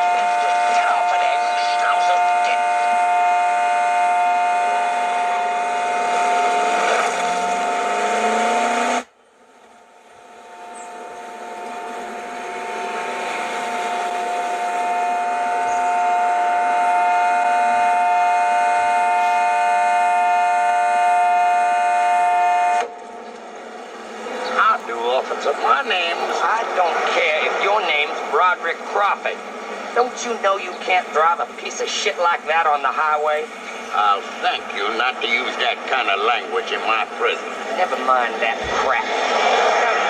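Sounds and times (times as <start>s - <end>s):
loud chord horn blast: 0.0s - 9.1s, 9.8s - 23.1s.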